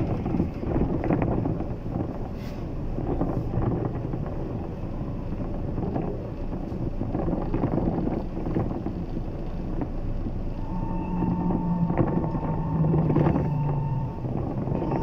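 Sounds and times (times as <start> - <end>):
trolleybus ride rumble: 0.0 - 15.0
electric traction whine: 9.7 - 15.0.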